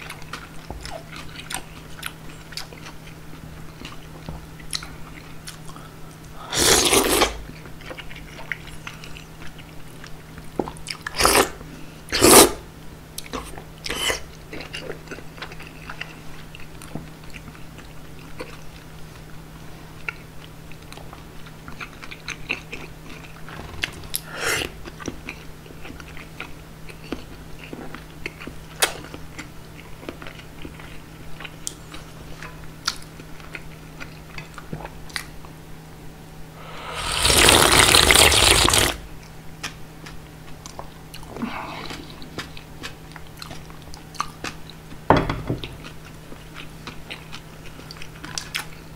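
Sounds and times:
mouth chewing with wet clicks: 0.0s - 5.8s, 7.6s - 11.4s, 13.2s - 19.2s, 20.0s - 23.3s, 24.9s - 35.3s, 41.9s - 44.9s, 45.8s - 48.8s
loud slurp: 6.5s - 7.4s, 11.2s - 11.6s, 12.2s - 12.6s, 36.6s - 39.0s.

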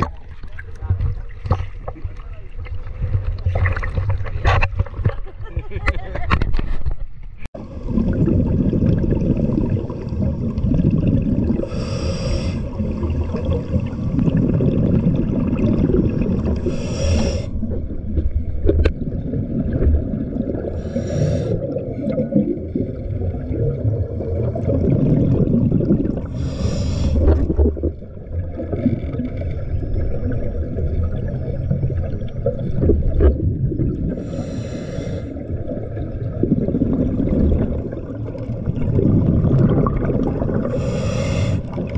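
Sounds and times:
underwater rumble of moving water: 0.0s - 41.9s
scuba exhaust bubbles hissing: 7.6s - 17.7s, 19.4s - 41.9s.

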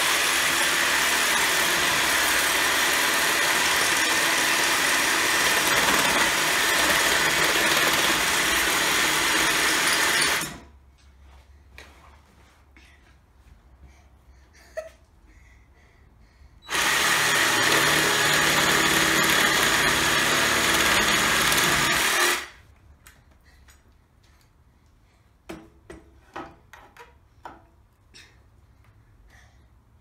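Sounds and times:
reciprocating saw cutting log: 16.7s - 22.6s.

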